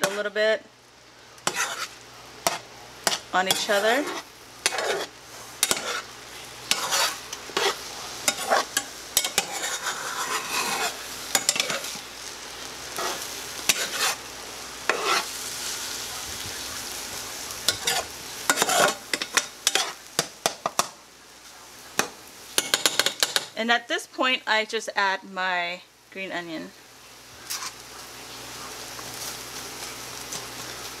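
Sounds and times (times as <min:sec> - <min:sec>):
spatula scraping frying pan: 0:00.0 - 0:00.3, 0:01.4 - 0:12.1, 0:12.9 - 0:14.2, 0:14.8 - 0:15.8, 0:17.7 - 0:20.3, 0:27.4 - 0:27.8
eggs sizzling: 0:00.0 - 0:31.0.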